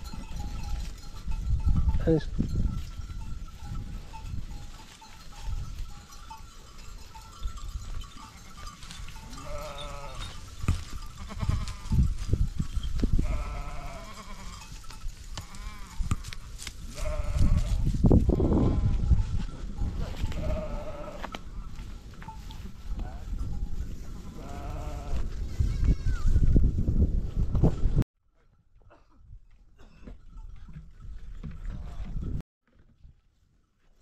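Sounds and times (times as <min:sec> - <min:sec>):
sheep and goats bleating: 0:02.4 - 0:19.3, 0:20.0 - 0:23.4, 0:24.0 - 0:26.4.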